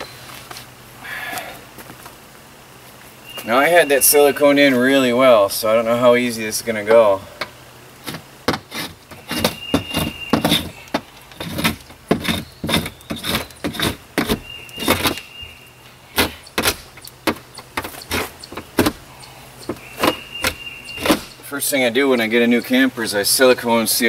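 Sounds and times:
tool prying at metal window frame: 0:08.1 - 0:15.2, 0:16.2 - 0:21.4.

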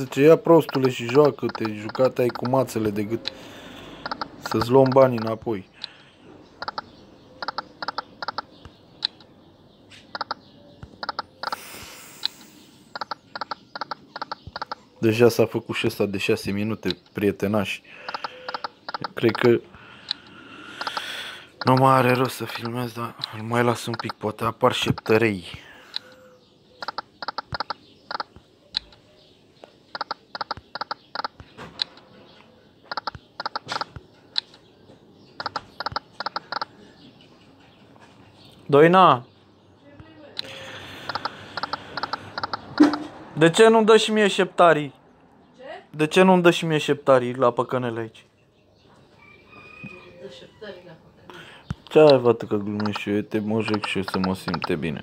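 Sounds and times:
short electronic clicks: 0:00.6 - 0:03.4, 0:04.0 - 0:06.0, 0:06.6 - 0:09.3, 0:10.0 - 0:14.8, 0:18.0 - 0:19.5, 0:20.1 - 0:24.2, 0:26.8 - 0:29.0, 0:29.9 - 0:32.1, 0:32.9 - 0:34.6, 0:35.4 - 0:36.7, 0:40.4 - 0:43.2, 0:51.8 - 0:54.8
slot reel ticks: 0:00.6 - 0:03.4, 0:04.0 - 0:05.4, 0:06.6 - 0:06.8, 0:07.4 - 0:08.4, 0:18.1 - 0:19.5, 0:41.1 - 0:43.0, 0:52.8 - 0:53.1, 0:53.7 - 0:54.8.

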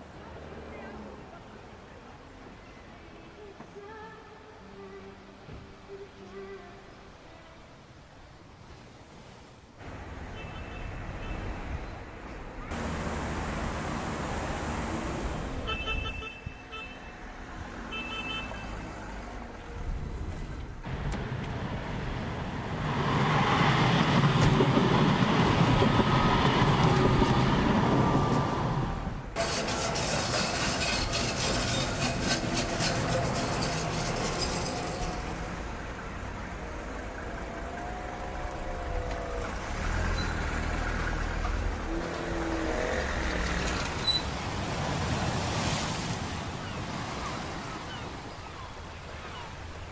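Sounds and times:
street traffic noise: 0:00.0 - 0:49.9
trams passing: 0:19.3 - 0:45.2.

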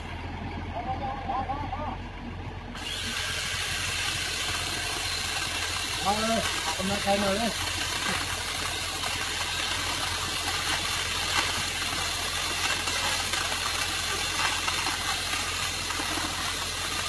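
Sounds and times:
truck engine running: 0:00.0 - 0:17.0.

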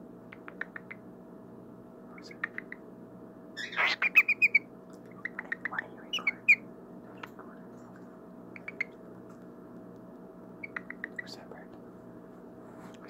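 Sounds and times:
faint steady hum: 0:00.0 - 0:13.0
cockatiel chirping: 0:03.6 - 0:06.6, 0:08.6 - 0:09.0, 0:10.6 - 0:11.4.

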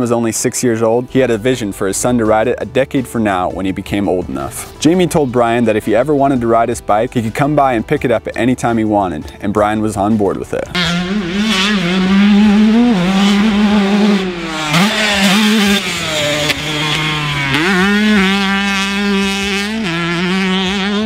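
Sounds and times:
two-stroke motorcycle engine revving: 0:10.6 - 0:21.0.

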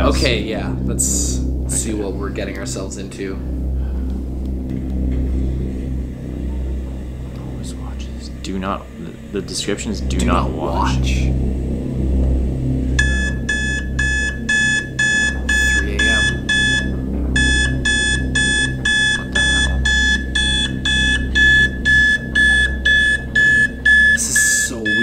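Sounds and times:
digital alarm clock beeping: 0:13.0 - 0:25.0.

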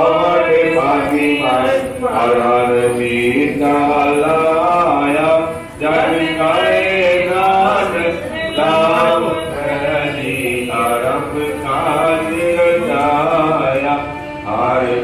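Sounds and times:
person singing chant-like melody: 0:00.0 - 0:15.0.

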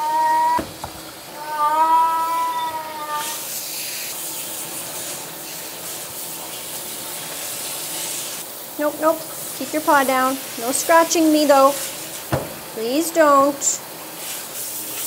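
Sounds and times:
cat meowing: 0:00.0 - 0:00.7, 0:01.3 - 0:03.4
shower sprayer hissing water: 0:00.0 - 0:15.0.

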